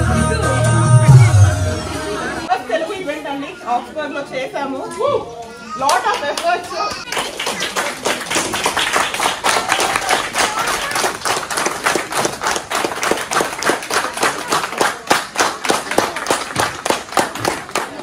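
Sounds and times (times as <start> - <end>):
crowd clapping: 5.8 - 18.0.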